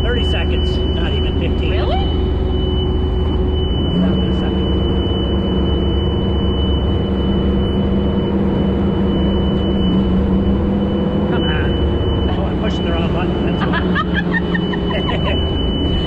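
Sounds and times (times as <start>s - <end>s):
thin high whine: 0.0s - 16.0s
vehicle engine running: 0.0s - 16.0s.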